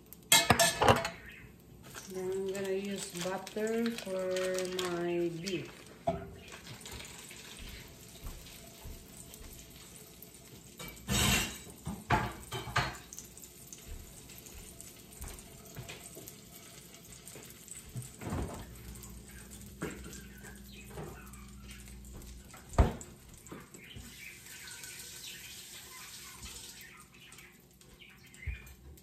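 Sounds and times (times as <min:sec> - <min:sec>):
dishes clinking: 0:00.3 - 0:01.3, 0:06.0 - 0:07.0, 0:10.8 - 0:13.2
running tap water: 0:01.1 - 0:29.0.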